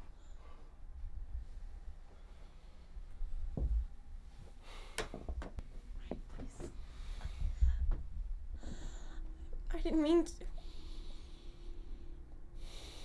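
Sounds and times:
low room rumble: 0.0s - 13.0s
person breathing and sighing: 6.9s - 9.6s.

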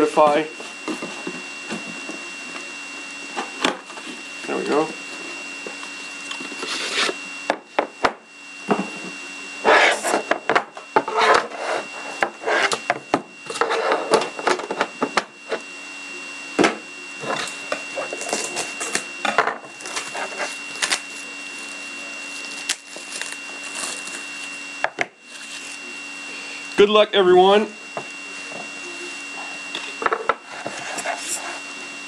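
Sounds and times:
box handling scraping and rustling: 6.4s - 7.2s, 9.6s - 10.3s, 11.0s - 12.9s, 13.5s - 15.0s, 17.2s - 24.6s, 25.2s - 25.8s, 30.0s - 31.7s.

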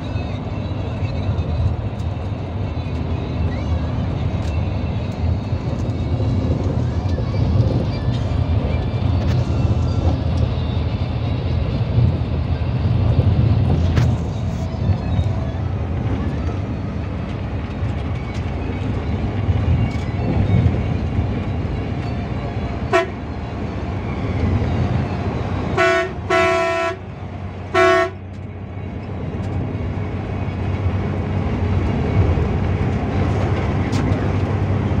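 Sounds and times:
bus engine running: 0.0s - 35.0s
horn blasts: 22.8s - 23.3s, 25.7s - 27.0s, 27.7s - 28.2s.

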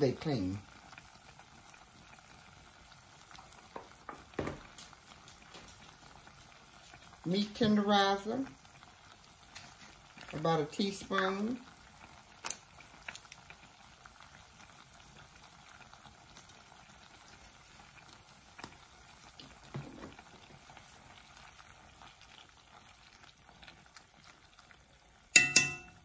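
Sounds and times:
pot simmering with small pops: 0.0s - 26.0s
sharp metallic clink: 25.4s - 26.0s.

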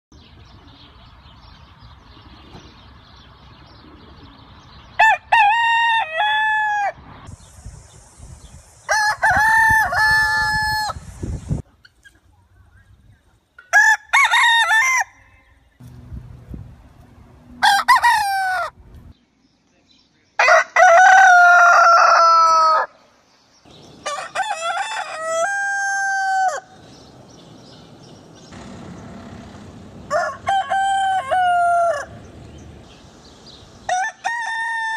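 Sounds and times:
roosters crowing: 5.0s - 7.1s, 8.8s - 11.1s, 13.7s - 15.7s, 17.5s - 18.8s, 20.4s - 23.0s, 23.7s - 34.9s
background hiss: 7.3s - 13.6s, 31.9s - 33.9s.

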